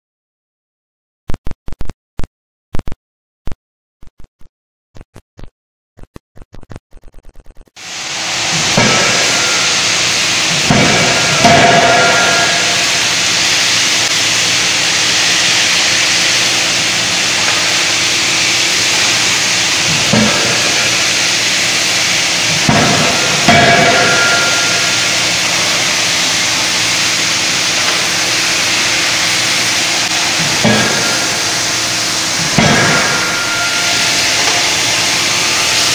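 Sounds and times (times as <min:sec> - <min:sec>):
forging hammer striking steel: 0:07.8 - 0:35.9
loud steady hissing noise: 0:07.8 - 0:35.9
metallic ringing: 0:08.6 - 0:35.9.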